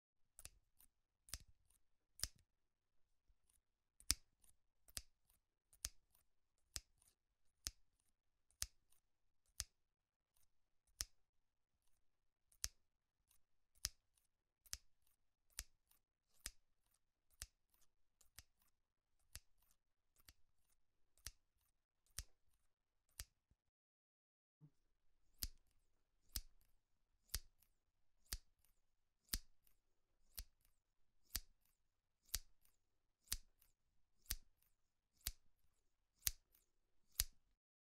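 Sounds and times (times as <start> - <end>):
scissors snipping: 0.4 - 2.4, 3.5 - 7.8, 8.5 - 9.8, 10.4 - 11.2, 11.8 - 14.0, 14.6 - 16.6, 17.3 - 23.4, 25.3 - 35.4, 36.2 - 37.4.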